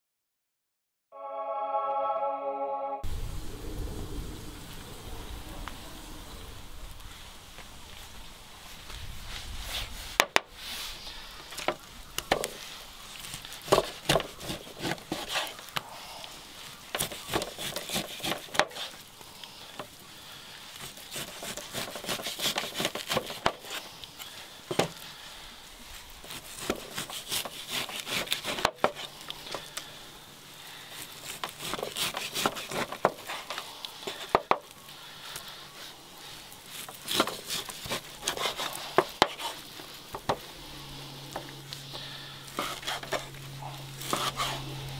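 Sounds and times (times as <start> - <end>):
steady faint hiss: 3.1 - 14.1, 32.8 - 44.9
wood and cooking gear handled: 31.0 - 40.5, 41.3 - 44.7.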